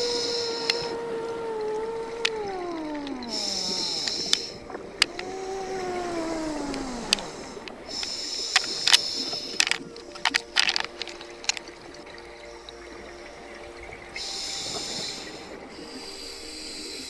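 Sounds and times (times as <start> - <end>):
regulator hissing inhalations: 0.0 - 1.0, 3.2 - 11.6, 14.2 - 17.0
low droning tone gliding down: 0.0 - 17.0
sharp clicks: 0.2 - 1.0, 1.6 - 5.4, 6.6 - 11.8.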